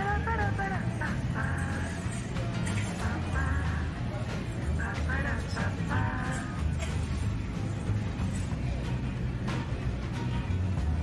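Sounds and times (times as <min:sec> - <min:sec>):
background music with bass line: 0:02.6 - 0:11.0.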